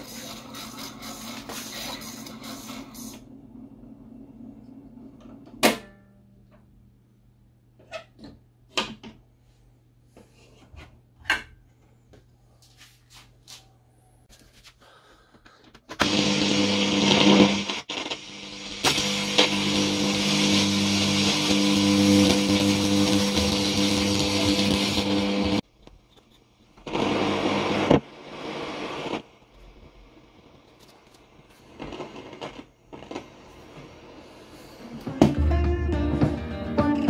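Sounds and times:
loudspeaker hum and hiss: 31.7s - 37.0s.

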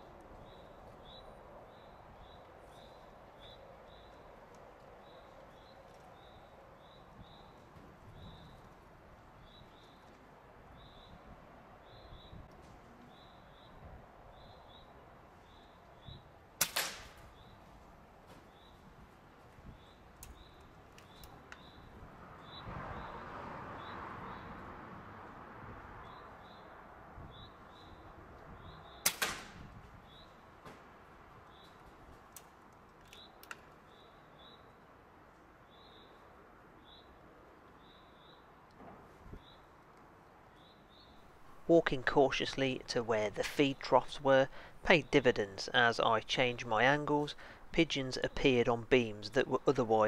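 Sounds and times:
air rifle shots: 16.6s - 17.3s, 29.0s - 29.7s.

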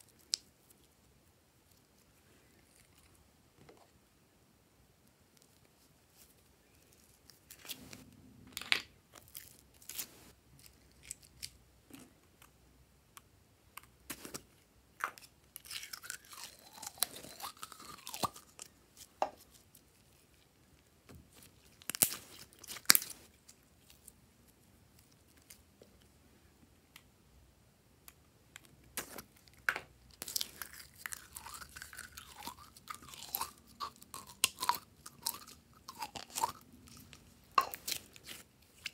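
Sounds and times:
slime squishing: 28.9s - 38.9s.

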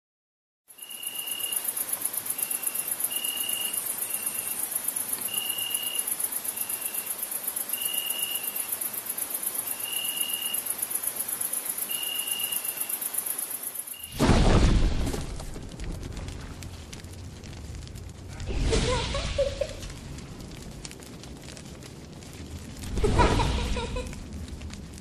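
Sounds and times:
lower insect chirp: 0.7s - 14.2s
insects chirring: 0.7s - 14.9s.

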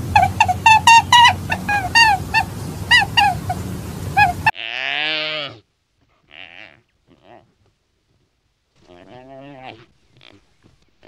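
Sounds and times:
steady low hum: 0.0s - 4.5s
short pitched honking calls: 0.0s - 4.6s
longer lower animal call: 0.0s - 5.6s, 6.3s - 7.5s.

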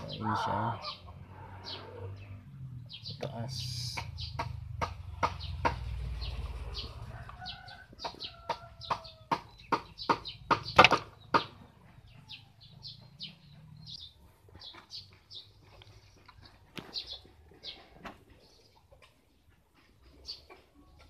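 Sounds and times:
chicken clucking: 6.8s - 9.9s, 14.5s - 21.0s.

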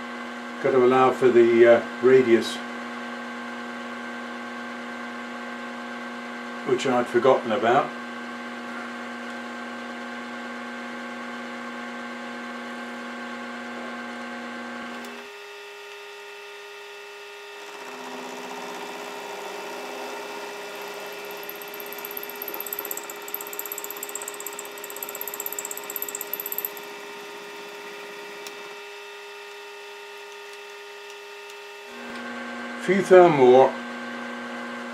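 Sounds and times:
milling machine spindle running: 17.6s - 28.8s
rough metal cutting noise: 17.6s - 28.8s.

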